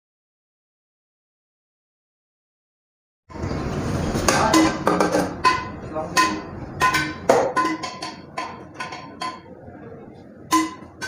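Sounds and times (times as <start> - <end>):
metal spoon clanking on steel pot: 4.2 - 9.7, 10.4 - 11.0.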